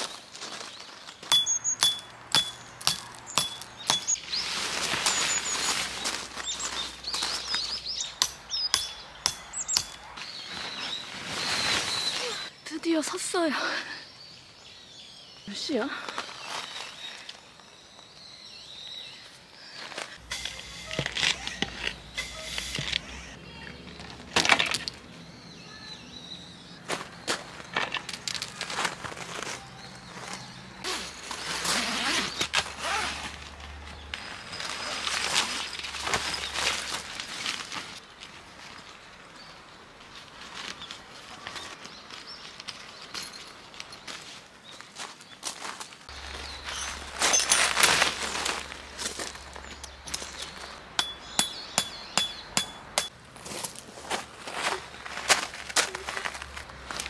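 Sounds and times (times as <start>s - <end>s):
birds chirping: 0.0s - 28.3s, 29.4s - 33.2s, 46.1s - 53.2s
metal tent peg hammered: 1.3s - 4.2s, 8.2s - 10.0s, 51.0s - 53.1s
tent fabric rustling: 4.2s - 7.7s, 10.2s - 12.5s, 28.6s - 39.0s.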